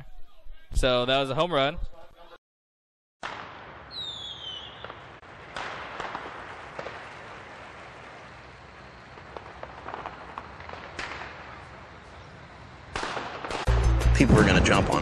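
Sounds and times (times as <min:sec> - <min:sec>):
sharp cracks: 0:03.2 - 0:12.0, 0:12.9 - 0:13.8
outdoor background noise: 0:03.2 - 0:15.0.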